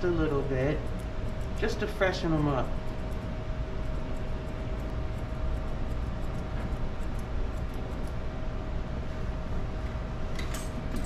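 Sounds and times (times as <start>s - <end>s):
low machine hum: 0.0s - 11.0s
grooming shears snipping: 0.4s - 8.2s.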